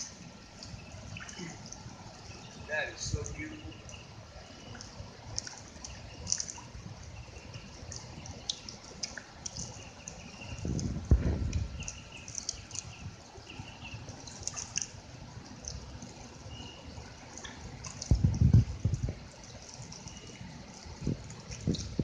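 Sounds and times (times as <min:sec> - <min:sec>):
water dripping: 0:00.0 - 0:22.0
low rumble: 0:10.6 - 0:12.1.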